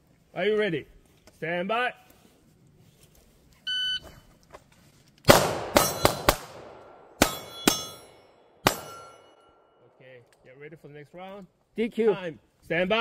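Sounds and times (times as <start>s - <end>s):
pistol shots: 5.3s - 9.3s
steel targets ringing: 5.8s - 6.4s, 7.2s - 9.8s.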